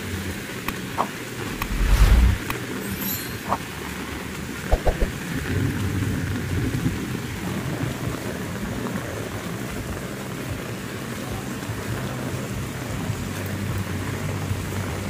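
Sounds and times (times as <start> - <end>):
low rumble: 1.5 - 2.5
heavy rain pouring: 3.7 - 15.0.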